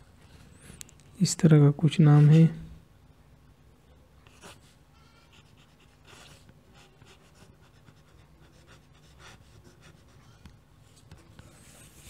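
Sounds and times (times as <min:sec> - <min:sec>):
pen nib scratching on paper: 0:05.3 - 0:10.2.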